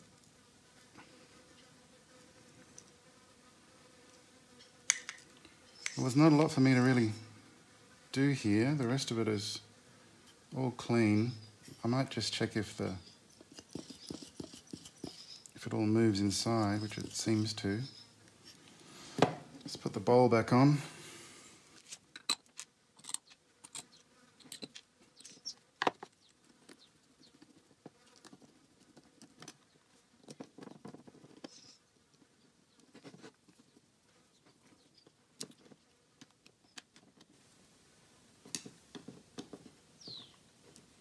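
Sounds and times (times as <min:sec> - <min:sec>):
small metal parts clicking: 0:22.1 - 0:25.5.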